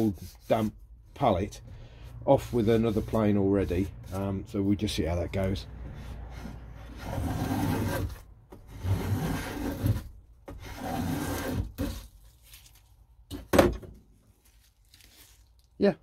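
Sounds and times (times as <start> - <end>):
hand plane rasping on wood: 2.3 - 4.5, 5.8 - 12.1.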